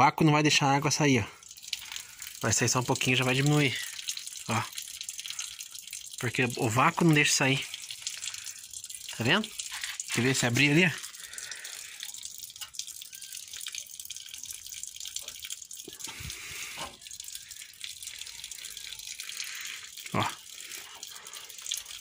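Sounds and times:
water stream from tap onto ground: 0.0s - 22.0s.

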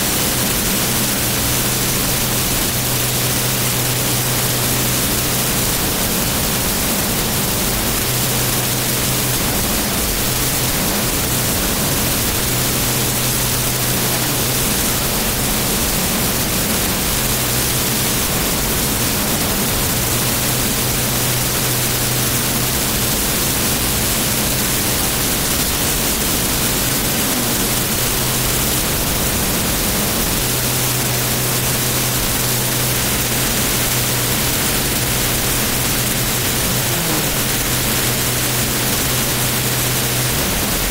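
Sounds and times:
jet engine roaring: 0.0s - 40.9s.

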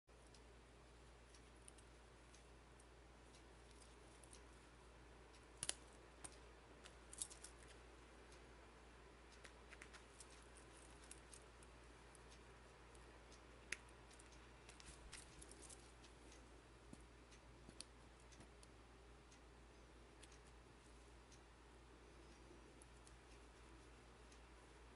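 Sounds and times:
small metallic clicks and taps: 5.3s - 8.4s, 9.3s - 19.4s.

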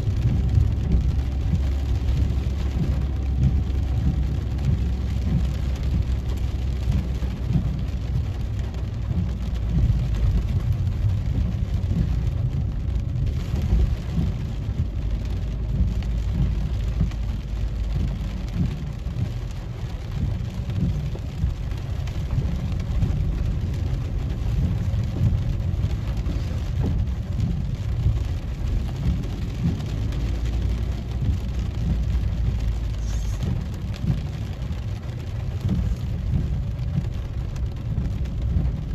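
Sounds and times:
car driving rumble: 0.0s - 38.9s
rain on car roof: 0.0s - 38.9s.

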